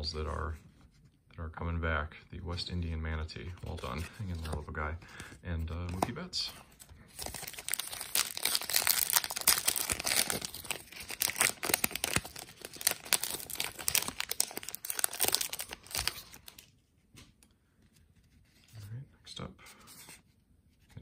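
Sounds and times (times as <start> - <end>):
trading cards being handled: 3.4 - 18.9
card pack wrapper crinkling and tearing: 7.0 - 16.7.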